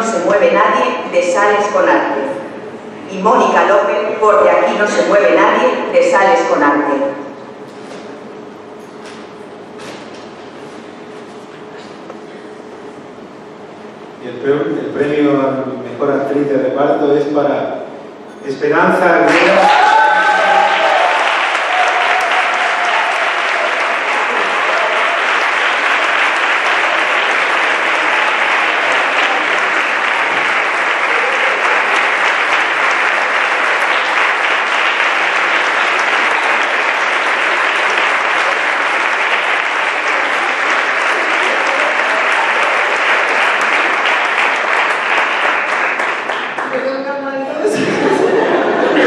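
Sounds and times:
audience applauding: 0:19.3 - 0:47.0.

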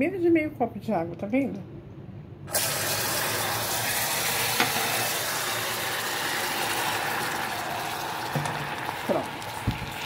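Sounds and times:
hot sugar sizzling in pot: 0:02.5 - 0:10.0.

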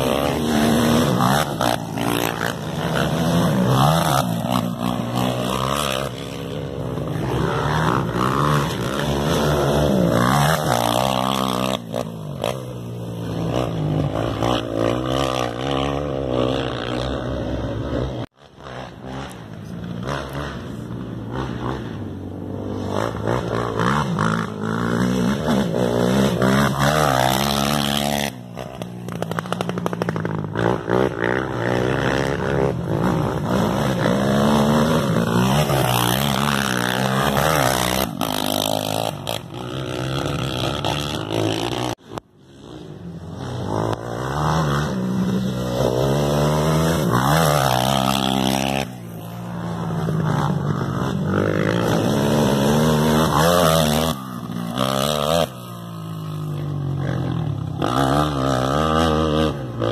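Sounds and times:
race engines revving: 0:00.0 - 0:59.9.

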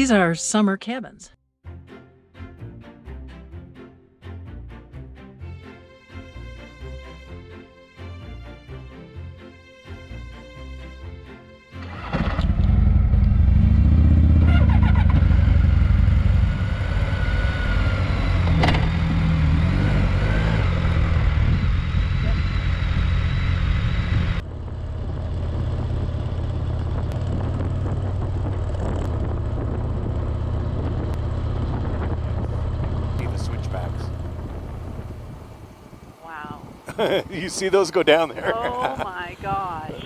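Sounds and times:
motorcycle engine revving: 0:11.8 - 0:36.0.

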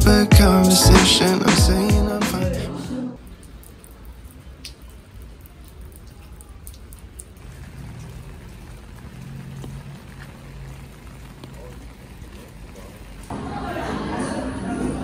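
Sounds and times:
light rain on a rooftop: 0:03.2 - 0:14.0.

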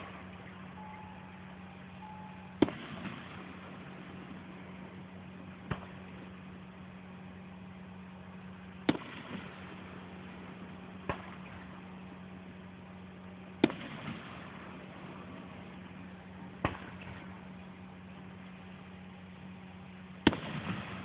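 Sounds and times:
steady low hum: 0:00.0 - 0:21.0
distant firework bangs: 0:02.0 - 0:04.7, 0:08.8 - 0:10.0, 0:11.0 - 0:11.8, 0:13.6 - 0:15.7, 0:16.6 - 0:17.5, 0:20.2 - 0:21.0.

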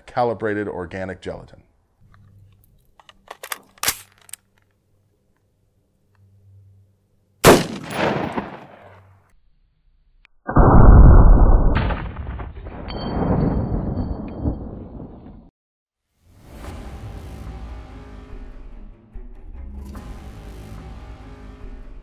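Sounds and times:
rifle shot with echo: 0:07.4 - 0:09.0
loud low rumble: 0:10.5 - 0:12.0.

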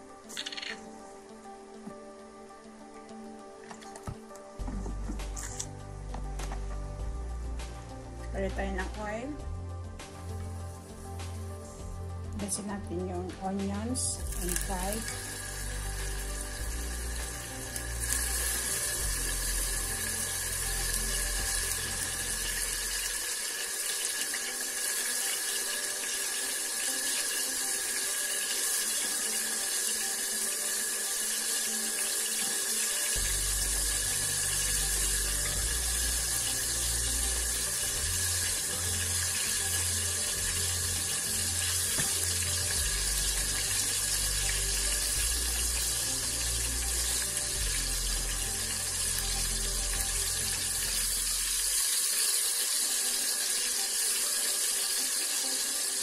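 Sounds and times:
background music: 0:00.0 - 0:56.0
onions sizzling in oil: 0:09.9 - 0:12.1, 0:14.2 - 0:56.0.

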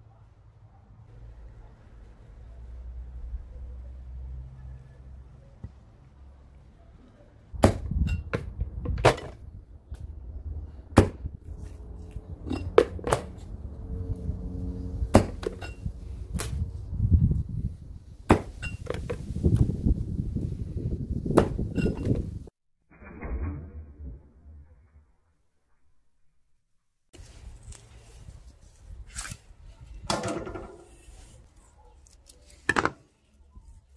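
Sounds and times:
low rumble: 0:08.0 - 0:18.2, 0:22.4 - 0:26.4.

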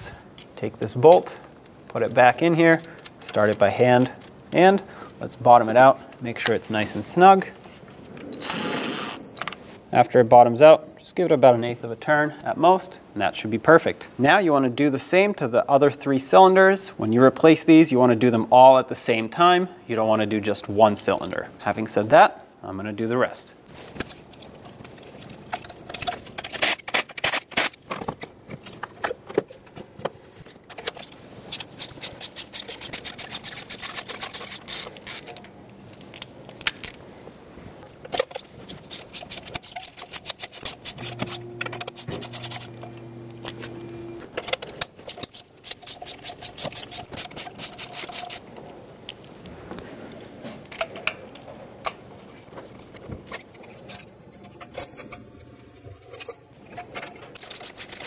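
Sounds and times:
hands handling plastic and metal parts: 0:37.8 - 0:48.4, 0:49.1 - 0:58.0.

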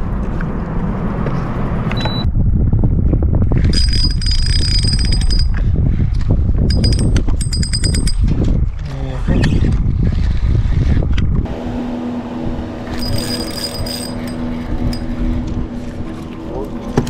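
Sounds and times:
fishing reel ticking whir: 0:12.9 - 0:15.1.

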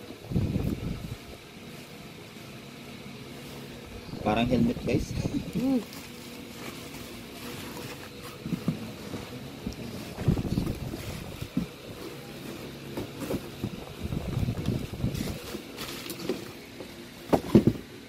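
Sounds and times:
plastic and bubble wrap rustling: 0:03.3 - 0:17.8
bumps against cardboard box: 0:10.0 - 0:16.4, 0:17.2 - 0:17.9.

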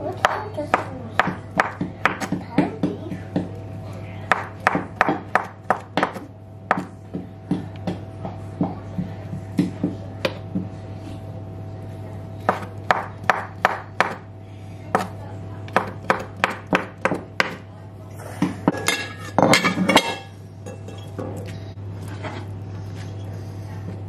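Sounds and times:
steady low hum: 0:00.0 - 0:24.0
knife chopping on wooden board: 0:12.5 - 0:14.2.

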